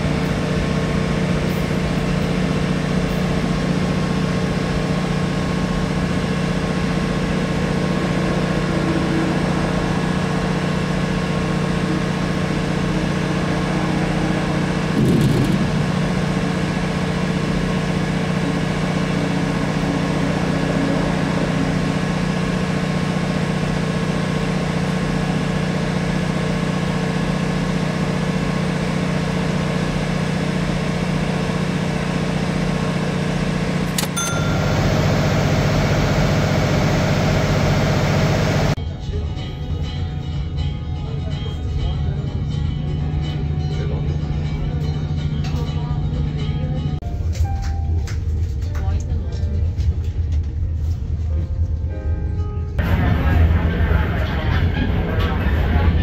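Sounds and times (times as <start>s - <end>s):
diesel railcar engine drone: 0.0s - 56.0s
loud bump: 14.9s - 16.2s.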